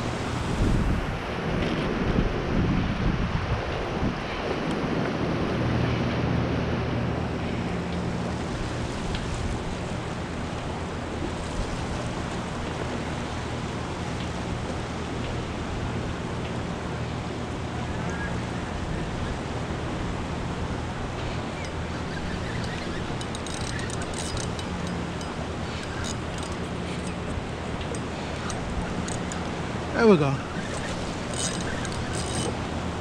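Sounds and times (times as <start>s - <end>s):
turbulent river water rushing: 0.0s - 1.6s, 19.4s - 33.0s.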